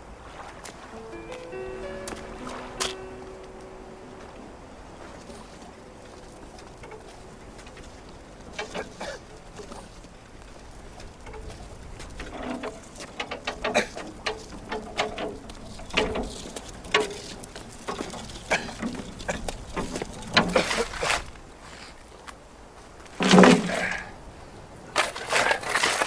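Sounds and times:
footsteps: 0:00.4 - 0:23.7
wheelbarrow rattling over planks: 0:04.9 - 0:21.9, 0:23.1 - 0:24.1, 0:24.9 - 0:26.0
scraping clatter: 0:05.1 - 0:21.9, 0:23.1 - 0:24.1, 0:25.0 - 0:26.0.

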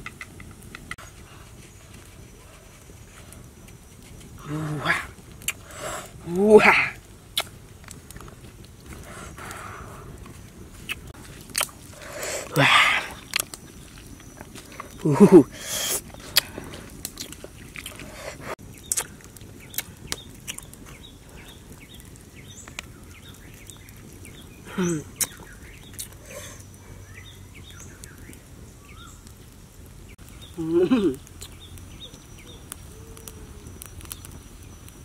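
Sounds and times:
person exclaiming wow: 0:06.3 - 0:07.0
birds chirping faintly: 0:12.0 - 0:35.0.

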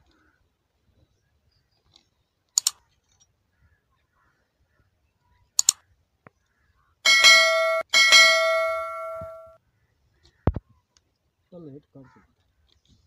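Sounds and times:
bell notification chime: 0:07.1 - 0:09.6.

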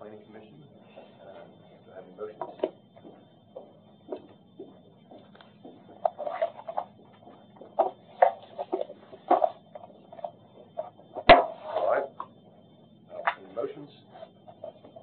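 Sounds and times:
faint murmurs: 0:00.0 - 0:03.8
room hum: 0:00.0 - 0:15.0.

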